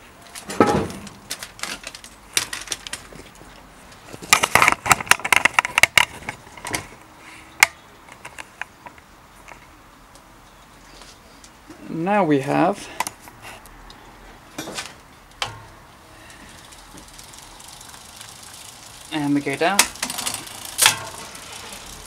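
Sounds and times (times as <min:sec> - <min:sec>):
bicycle drivetrain clicking: 0:01.1 - 0:07.0, 0:15.3 - 0:22.0.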